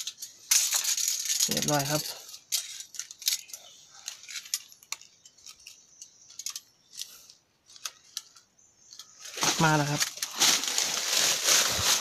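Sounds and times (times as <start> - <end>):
metal trap rattling on rock: 0.0 - 3.6.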